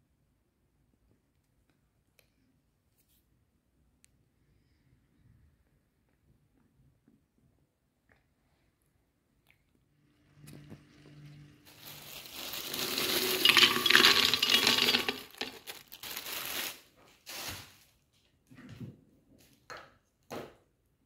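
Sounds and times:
plastic bag crinkling: 11.6s - 17.8s
frozen berries clattering in jug: 11.7s - 16.8s.

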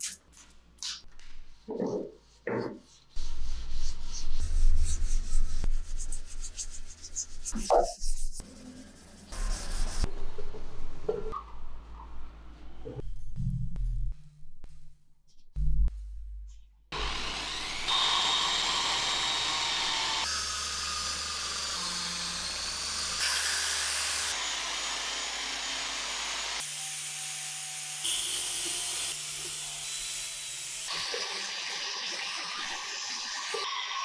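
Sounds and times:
electric polisher whirring: 17.0s - 29.9s.

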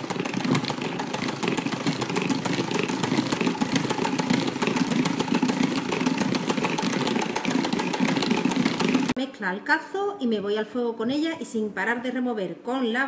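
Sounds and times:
electric hand mixer running: 0.0s - 9.2s.

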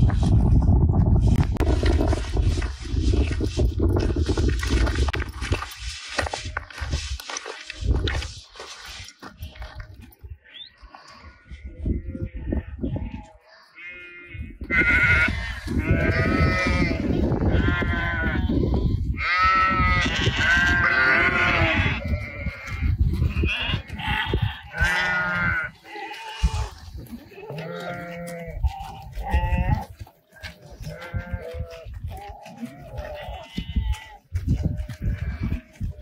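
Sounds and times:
sheep bleating: 11.0s - 36.0s.

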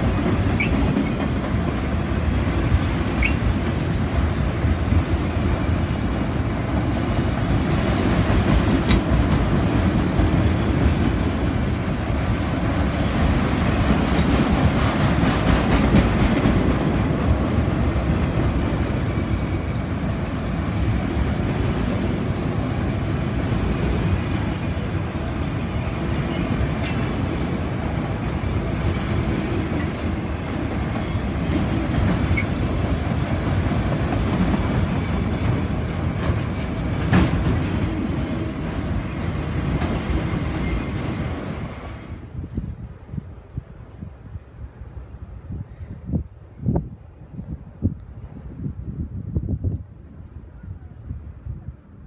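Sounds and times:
wheels clicking over rail joints: 0.0s - 5.2s, 6.0s - 41.8s
train wheels rumbling on rail: 0.0s - 52.0s.

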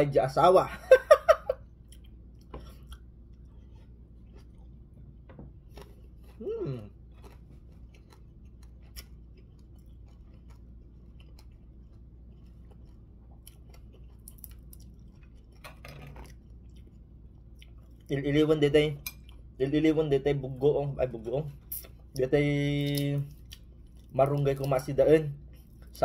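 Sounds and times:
person chewing: 1.5s - 18.2s, 19.0s - 19.6s, 21.5s - 26.0s
person humming mmm: 6.4s - 7.0s.

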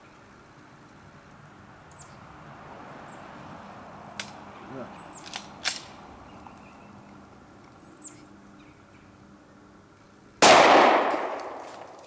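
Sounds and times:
pistol shot echoing: 10.4s - 12.0s.

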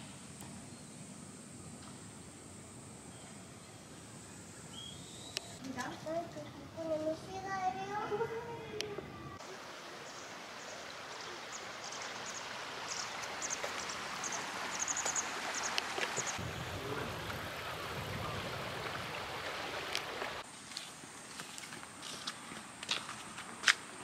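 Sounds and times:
stream water rushing: 9.4s - 20.5s
footsteps on asphalt: 20.7s - 23.9s.

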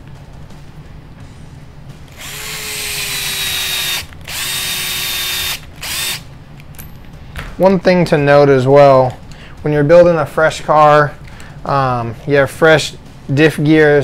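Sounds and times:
electric drill motor whining: 2.1s - 6.2s.

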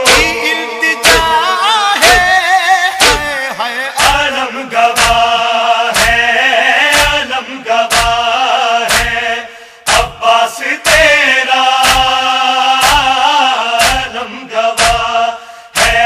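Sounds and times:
chest-beating slaps: 0.0s - 0.4s, 1.0s - 1.4s, 2.0s - 2.4s, 3.0s - 3.4s, 4.0s - 4.3s, 4.9s - 6.2s, 6.9s - 9.2s, 9.9s - 10.2s, 11.8s - 12.2s, 12.8s - 13.2s, 13.8s - 14.2s, 14.8s - 15.2s, 15.8s - 16.0s
man chanting a lament: 0.0s - 16.0s.

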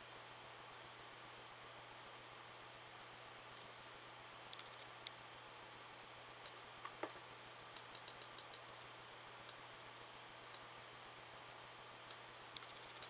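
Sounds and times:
steady low hiss: 0.0s - 13.0s
computer mouse clicks: 4.5s - 5.2s, 7.7s - 8.7s, 9.4s - 9.6s, 12.1s - 13.0s.

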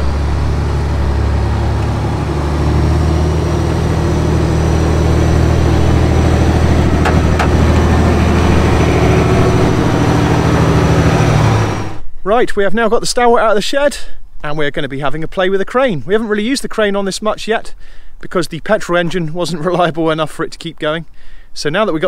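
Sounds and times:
diesel truck engine driving past: 0.0s - 12.0s
high steady whine: 0.0s - 12.3s.

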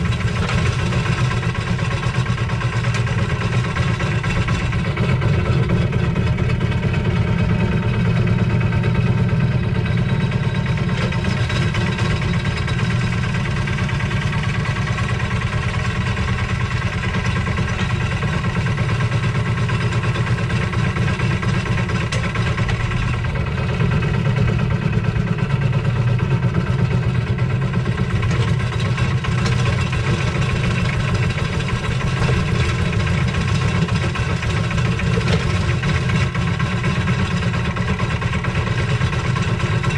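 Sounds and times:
diesel engine running steadily: 0.0s - 39.9s.

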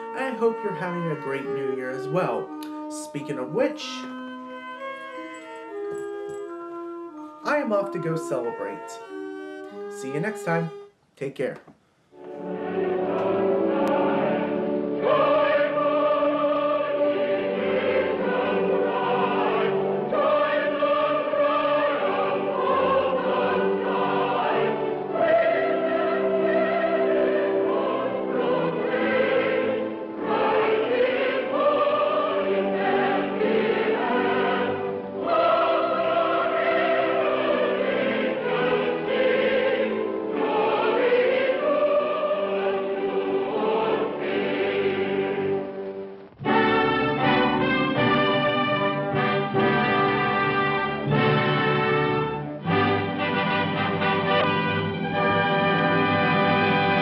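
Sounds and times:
choir singing: 12.2s - 57.0s.

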